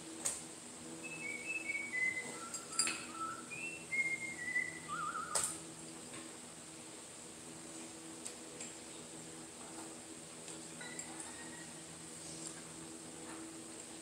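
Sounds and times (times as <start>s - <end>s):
person whistling a tune: 1.0s - 5.5s
light metal clinks: 2.5s - 3.1s.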